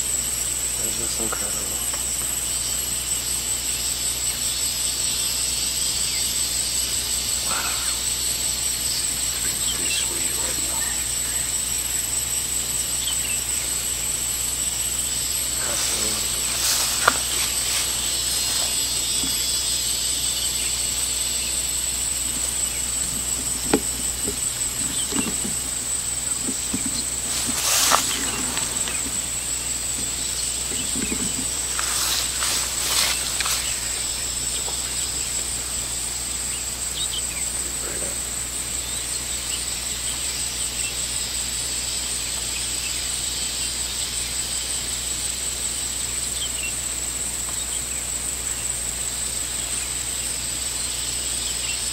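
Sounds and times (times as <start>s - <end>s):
rustles: 0.0s - 38.3s
high-pitched insect chorus: 0.0s - 51.9s.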